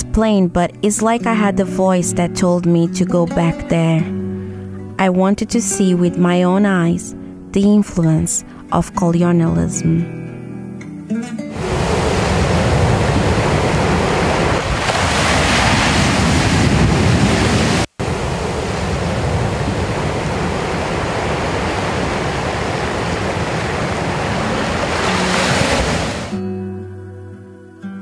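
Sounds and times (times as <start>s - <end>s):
surf breaking on pebbles: 11.6s - 26.4s
wind noise on microphone: 11.6s - 26.4s.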